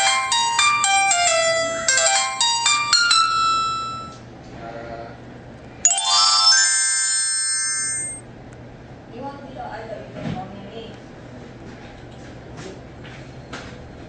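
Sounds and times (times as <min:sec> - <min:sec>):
electronic chime ringing: 0:01.8 - 0:04.2, 0:05.9 - 0:08.2
electronic power-on jingle: 0:05.9 - 0:08.2.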